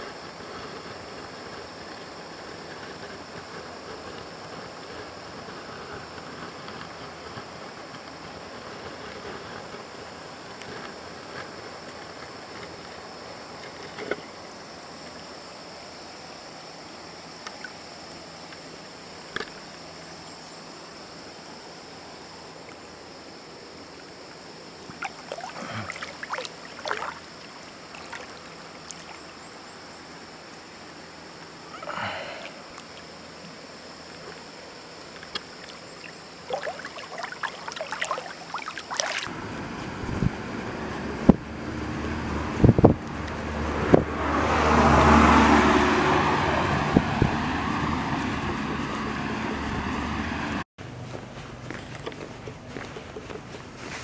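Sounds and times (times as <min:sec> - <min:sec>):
river flowing over stones: 0:22.0 - 0:29.6, 0:30.2 - 0:39.4
road traffic noise: 0:38.9 - 0:54.0.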